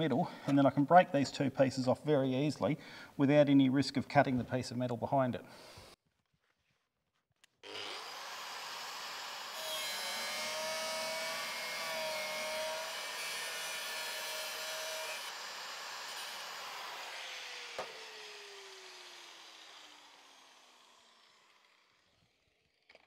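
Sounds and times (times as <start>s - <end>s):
angle grinder cutting sheet steel: 7.6s - 22.4s.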